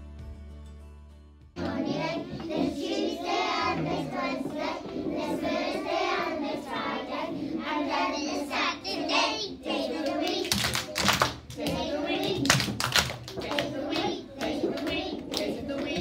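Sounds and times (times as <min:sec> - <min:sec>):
children singing: 0:01.6 - 0:16.0
hand claps: 0:10.0 - 0:16.0.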